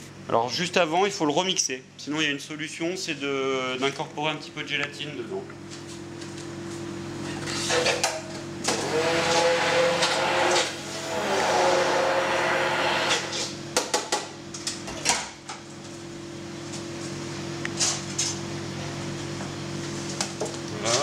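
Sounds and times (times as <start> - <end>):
electric blender running: 8.6 - 13.6.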